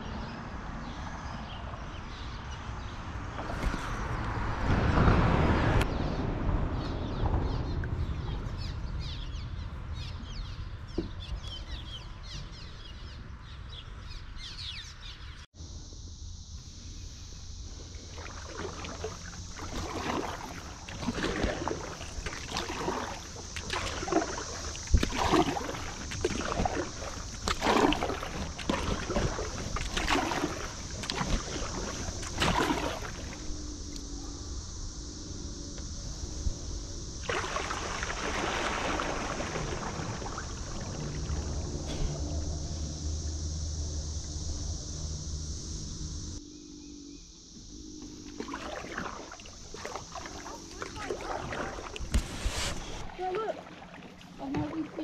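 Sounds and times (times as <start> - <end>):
paddle strokes splashing: 17.8 - 33.6, 37.1 - 42.6, 48.0 - 55.0
steady low rumble: 39.0 - 48.3.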